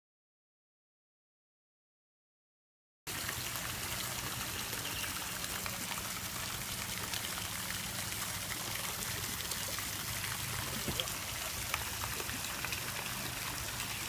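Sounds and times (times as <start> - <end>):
water rushing: 3.1 - 14.0.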